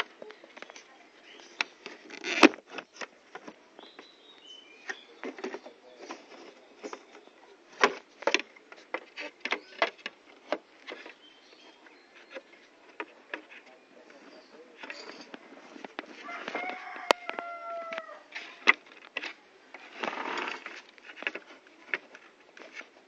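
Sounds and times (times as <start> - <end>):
hard plastic parts clicking: 7.8 - 11.2, 14.8 - 23.0.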